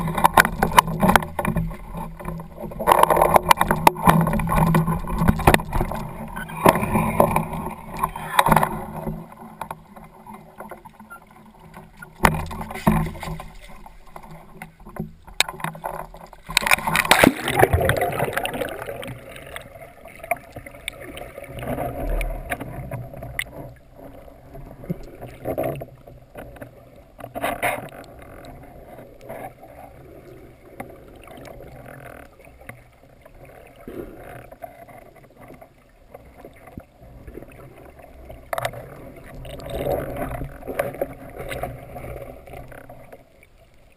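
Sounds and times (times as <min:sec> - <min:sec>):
underwater knocks: 0:00.0 - 0:10.8, 0:11.9 - 0:19.0
muffled underwater water noise: 0:00.0 - 0:43.9
water sloshing and splashing: 0:00.0 - 0:43.9.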